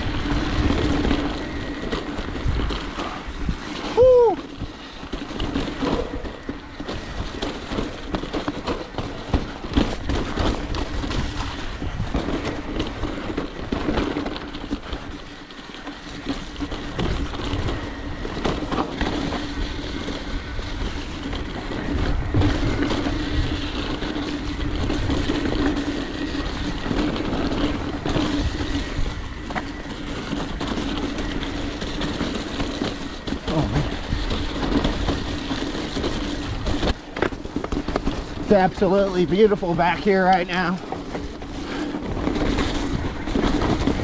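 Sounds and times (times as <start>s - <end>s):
bike knocking and rattling: 0.0s - 44.0s
bike tyre noise: 0.0s - 44.0s.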